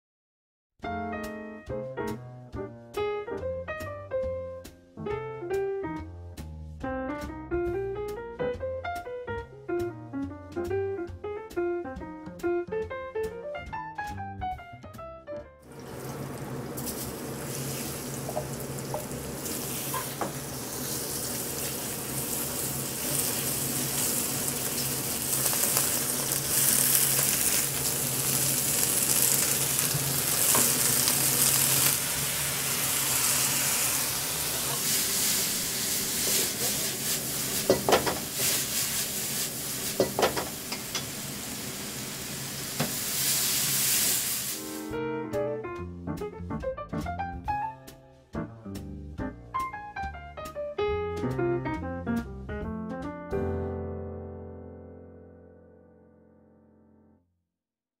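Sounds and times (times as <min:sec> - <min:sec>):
food sizzling in wok: 0:15.7 - 0:45.0.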